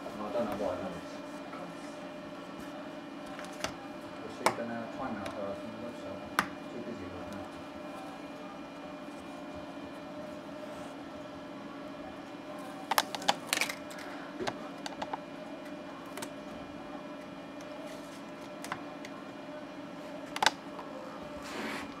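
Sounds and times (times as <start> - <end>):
steady low hum: 0.0 - 22.0
plastic and paper clicks and crinkles: 12.7 - 15.2.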